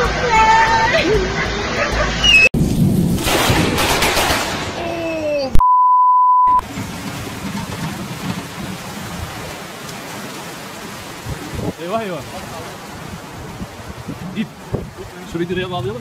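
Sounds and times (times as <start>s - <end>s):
electronic beep: 2.2s - 2.6s, 5.6s - 6.6s
floodwater rushing through a street: 6.6s - 16.0s.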